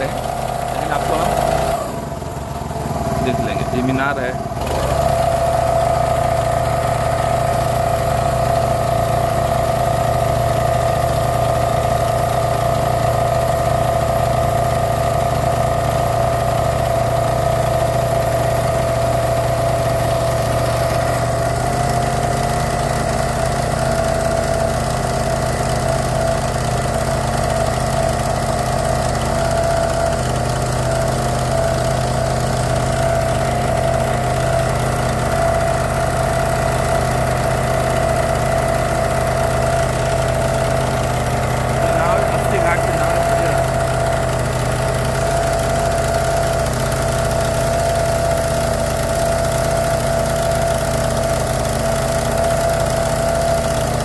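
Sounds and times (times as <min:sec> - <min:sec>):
motorboat engine running: 0:00.0 - 0:54.0.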